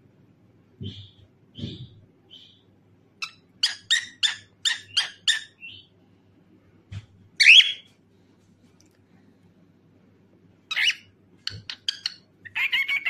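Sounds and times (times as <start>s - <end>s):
cockatiel chirping: 3.2s - 5.9s, 7.4s - 7.9s, 10.7s - 13.0s.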